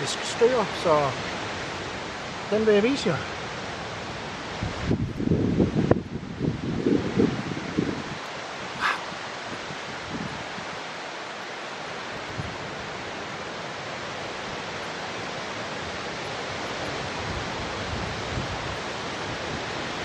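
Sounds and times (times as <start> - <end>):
wind hiss: 0.0 - 20.0
wind buffeting microphone: 4.5 - 10.8, 15.8 - 20.0.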